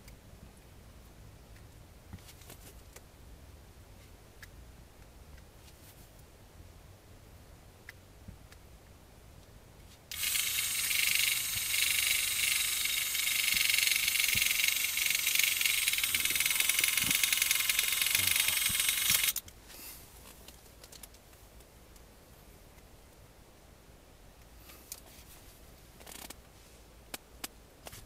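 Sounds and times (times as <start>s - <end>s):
fishing reel motor whirring: 10.1s - 19.4s.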